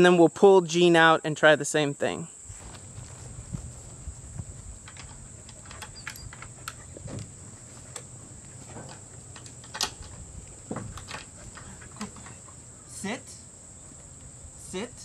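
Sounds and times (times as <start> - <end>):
insects droning: 0.0 - 15.0
wooden gate clicks and knocks: 4.8 - 8.1, 8.7 - 12.4.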